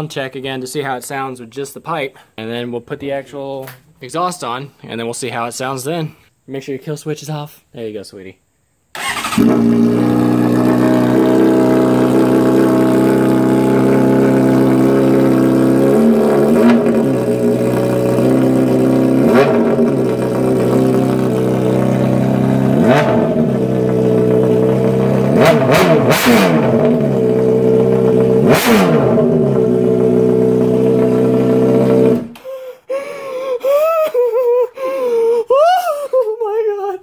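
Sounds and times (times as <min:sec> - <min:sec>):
motorcycle engine idling and revving: 0:09.0 - 0:32.4.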